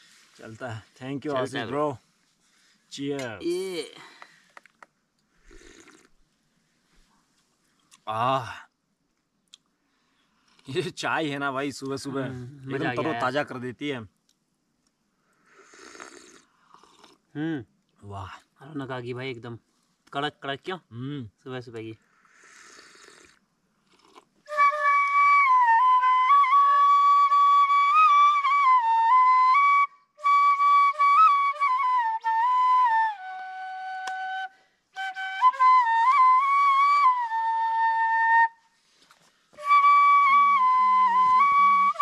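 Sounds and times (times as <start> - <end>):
solo flute melody: 24.5 - 39.0, 39.6 - 42.0.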